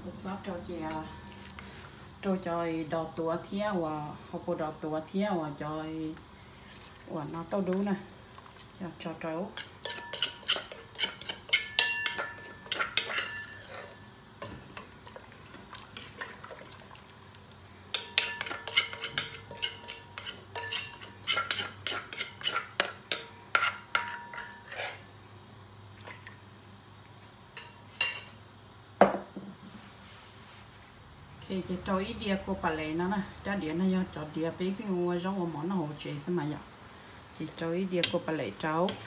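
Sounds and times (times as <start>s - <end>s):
spoon scraping cooking pot: 9.6s - 14.1s, 18.0s - 25.1s.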